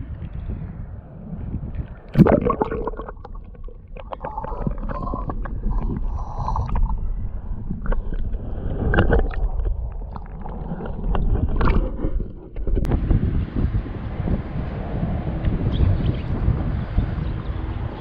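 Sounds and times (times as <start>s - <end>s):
muffled water sloshing and gurgling: 0.0s - 13.0s
underwater clicks and knocks: 2.1s - 12.9s.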